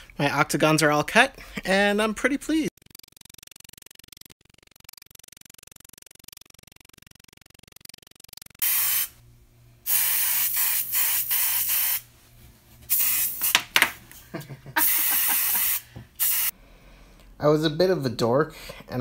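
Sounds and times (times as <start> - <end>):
sharp clicks: 2.7 - 8.6
spray paint can hissing: 8.0 - 9.2, 9.9 - 12.0, 12.9 - 13.6, 14.8 - 16.6.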